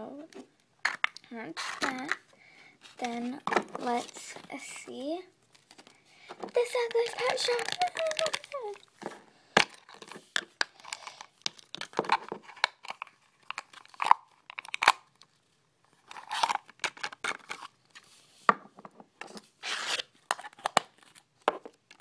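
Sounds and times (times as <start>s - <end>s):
plastic wrapper tearing and crinkling: 2.8s - 4.8s, 5.5s - 17.7s, 19.6s - 22.0s.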